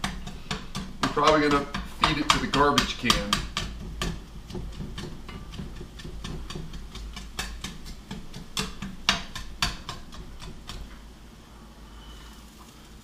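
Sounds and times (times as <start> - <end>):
utensil knocking against a pan: 0.0 - 11.0.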